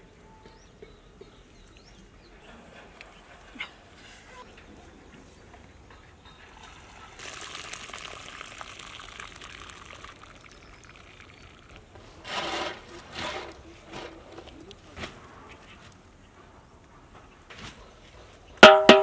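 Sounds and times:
hot water trickling and pouring: 6.4s - 13.2s.

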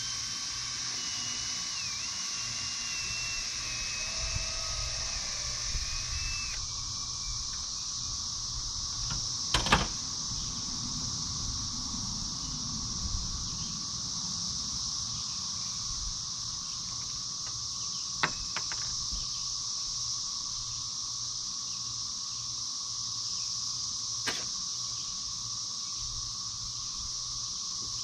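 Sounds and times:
insects chorus: 0.0s - 28.0s
sharp knocks on wood: 18.2s - 18.9s.

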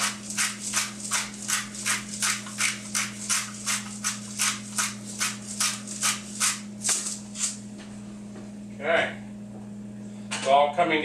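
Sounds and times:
pepper mill grinding: 0.0s - 7.6s.

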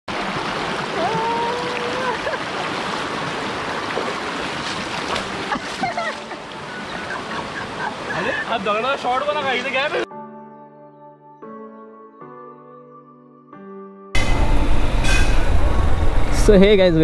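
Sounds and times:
fast-flowing stream water: 0.1s - 10.0s.

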